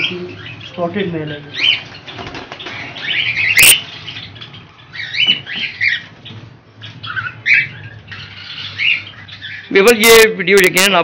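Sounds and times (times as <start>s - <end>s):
cockatiels chirping: 0.0s - 10.3s
wing flapping: 1.9s - 4.1s.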